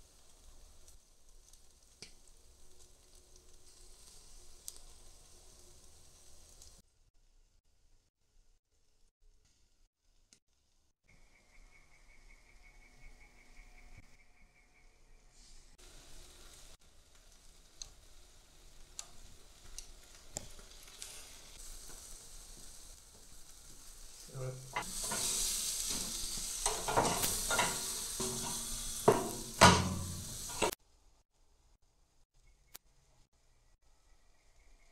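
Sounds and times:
meat sizzling on a grill: 0:00.0 - 0:06.8, 0:15.6 - 0:30.8
tongs knocking against grill grate: 0:26.6 - 0:30.7.

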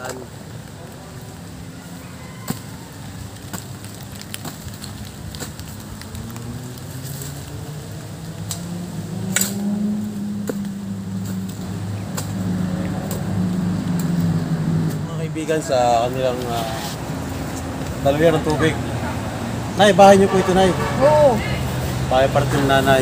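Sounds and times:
sharp clicks and snaps: 0:08.3 - 0:08.7.

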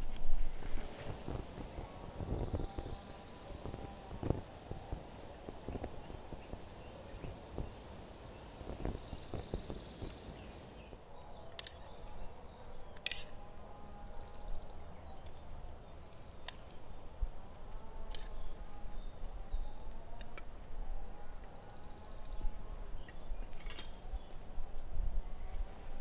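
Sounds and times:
burning log crackling: 0:00.0 - 0:10.9.

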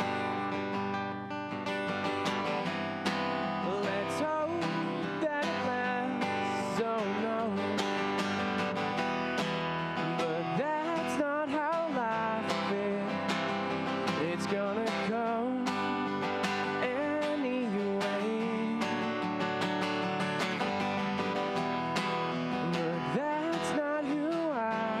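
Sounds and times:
acoustic guitar strumming: 0:00.0 - 0:25.0
man singing: 0:03.4 - 0:09.0, 0:09.9 - 0:19.5, 0:22.5 - 0:25.0.

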